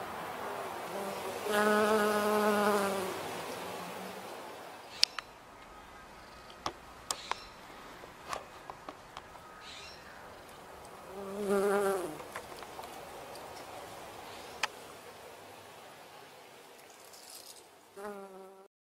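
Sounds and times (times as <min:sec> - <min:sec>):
bee wingbeat buzz: 0:00.6 - 0:04.4, 0:11.1 - 0:12.3, 0:18.0 - 0:18.7.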